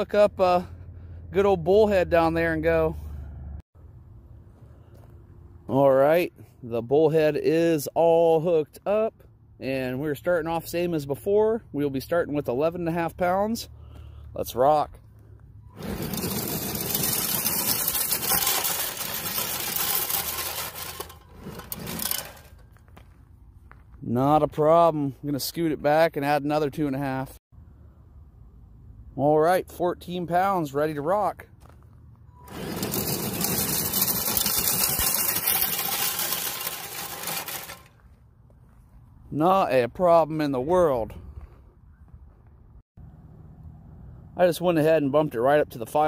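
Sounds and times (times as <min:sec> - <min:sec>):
sled scraping through gravel: 0:15.7 - 0:22.8, 0:32.4 - 0:38.1
toy truck motor whirring: 0:15.8 - 0:22.5, 0:32.4 - 0:37.9
rc truck electric motor whining: 0:32.4 - 0:37.8.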